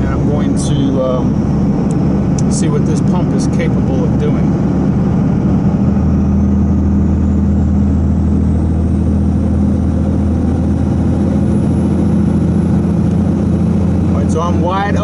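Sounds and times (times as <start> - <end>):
diesel engine low drone: 0.0 - 15.0.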